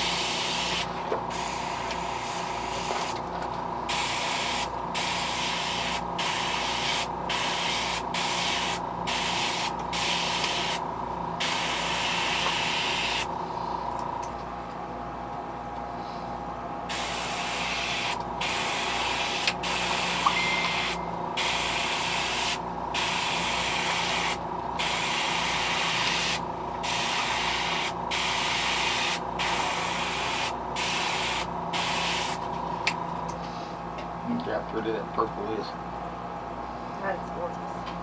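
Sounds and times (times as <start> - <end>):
airbrush spraying hiss: 0.0 - 3.2, 3.9 - 10.8, 11.4 - 13.3, 16.9 - 32.4.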